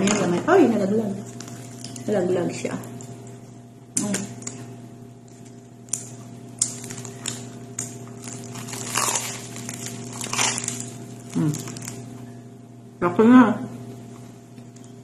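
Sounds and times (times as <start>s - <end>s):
steady low hum: 0.0s - 15.0s
crunching bread crust: 2.9s - 12.3s.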